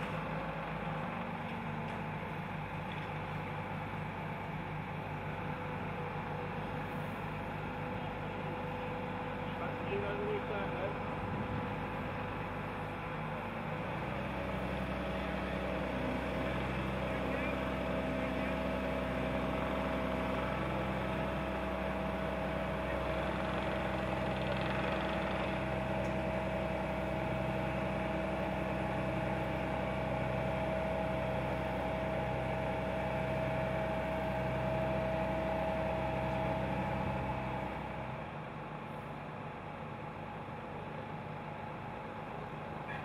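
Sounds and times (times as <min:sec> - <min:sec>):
diesel engine running under load: 0:00.0 - 0:43.0.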